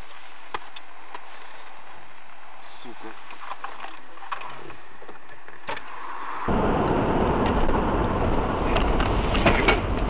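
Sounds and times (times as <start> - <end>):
car driving rumble inside cabin: 6.4 - 10.0.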